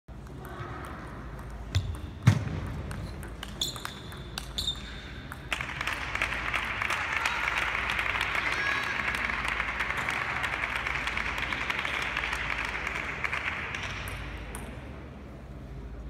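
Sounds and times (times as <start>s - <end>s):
table tennis ball clicks: 0.2s - 6.0s
shoe squeaks on floor: 3.5s - 5.1s
applause: 5.5s - 14.3s.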